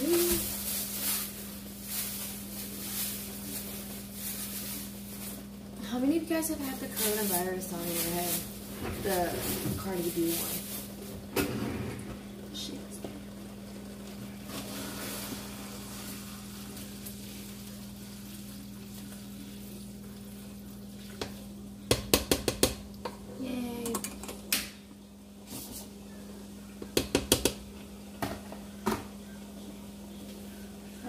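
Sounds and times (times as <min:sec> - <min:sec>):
utensil knocking on metal pot: 0:21.9 - 0:22.8.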